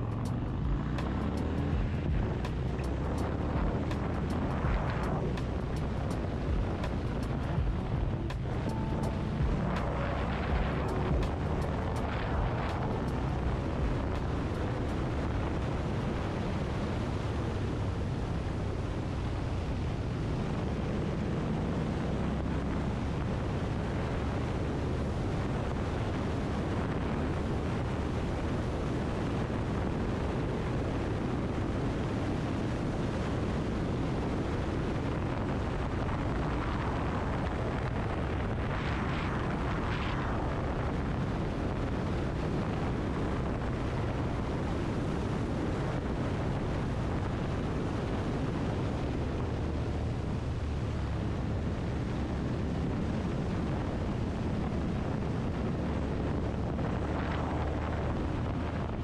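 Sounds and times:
motorcycle engine running: 0:00.0 - 0:23.2
wind rushing over microphone: 0:00.0 - 0:59.0.

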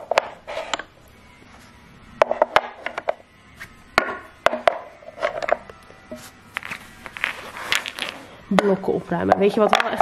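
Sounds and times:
toy blocks knocking into wooden box: 0:09.3 - 0:10.0.

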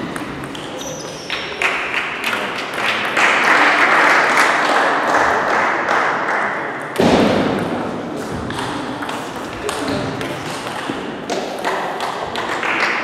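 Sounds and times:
spectators applauding: 0:01.6 - 0:06.6, 0:12.5 - 0:13.0.

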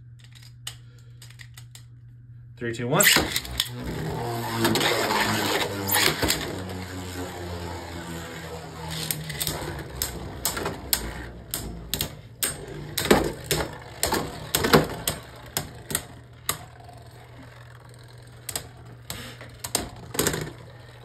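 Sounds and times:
spinning tops clacking: 0:03.0 - 0:21.0.

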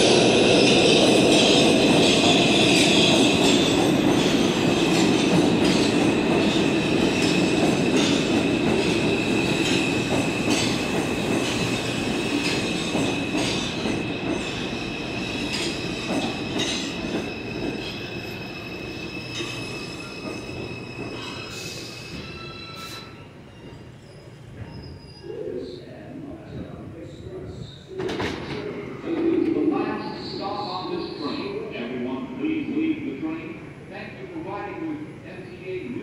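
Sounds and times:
train wheels squealing: 0:00.0 - 0:26.0
train cars rumbling: 0:00.0 - 0:36.0.

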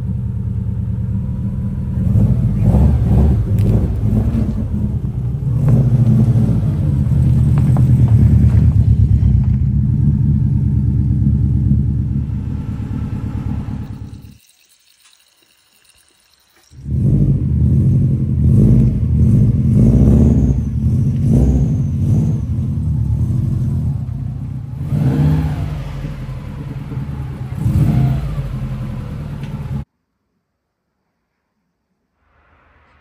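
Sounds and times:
car engine revving: 0:00.0 - 0:14.3, 0:16.8 - 0:29.9.

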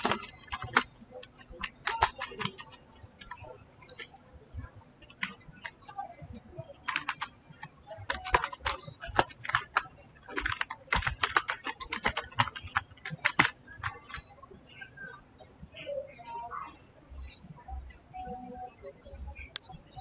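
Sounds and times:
keyboard typing: 0:00.0 - 0:15.2.

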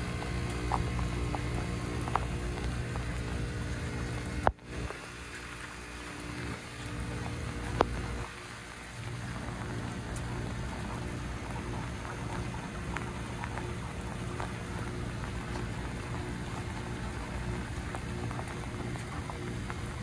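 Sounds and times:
heat pump compressor humming: 0:00.0 - 0:20.0
rain pattering: 0:00.0 - 0:20.0
raindrops tapping on microphone: 0:00.0 - 0:20.0.

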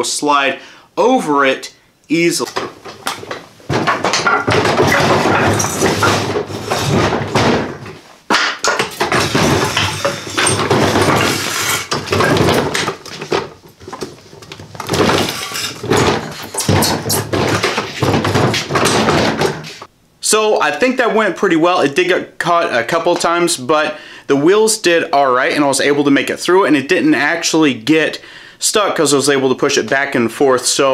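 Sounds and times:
wood pieces clattering: 0:02.4 - 0:19.9
tool box wheels rolling on concrete: 0:08.8 - 0:19.9.

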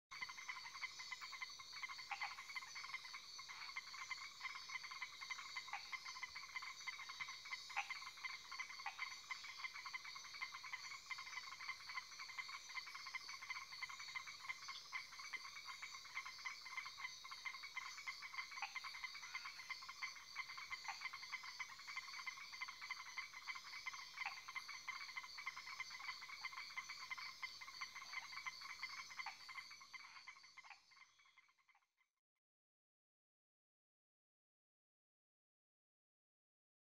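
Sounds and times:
frogs calling in chorus: 0:00.2 - 0:31.7.

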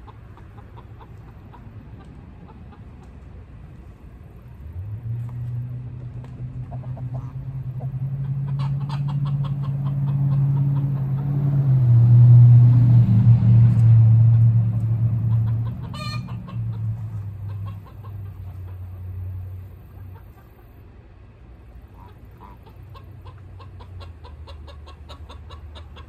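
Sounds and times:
chickens clucking: 0:00.0 - 0:03.8, 0:05.4 - 0:12.0, 0:12.7 - 0:20.8, 0:21.7 - 0:26.0
vehicle engine passing: 0:00.0 - 0:21.2
loud chicken call: 0:08.2 - 0:11.4, 0:15.2 - 0:18.2.

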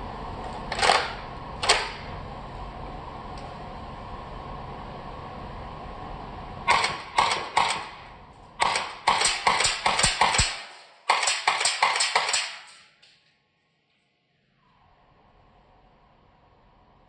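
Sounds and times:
airsoft rifle shots: 0:00.7 - 0:02.1, 0:06.7 - 0:13.0.

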